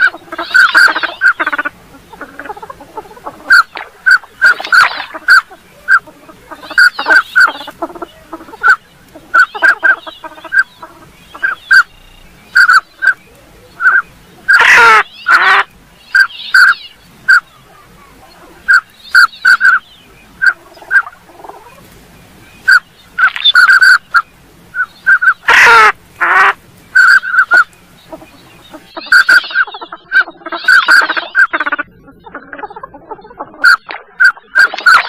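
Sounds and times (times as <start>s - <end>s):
harsh duck call: 0.0s - 11.9s, 13.8s - 19.8s, 22.7s - 32.8s
raspy wheezy duck calls: 0.0s - 11.9s, 13.8s - 19.8s, 25.1s - 35.0s
duck whistled notes: 22.7s - 25.5s, 29.0s - 31.5s.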